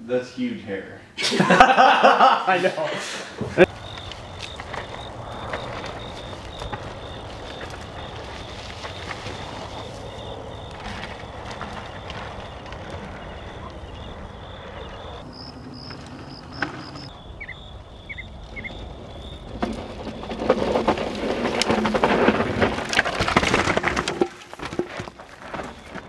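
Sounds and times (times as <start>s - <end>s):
bike tyres skidding on gravel: 3.6s - 17.6s, 18.6s - 26.0s
bird-like chirps: 12.5s - 19.4s.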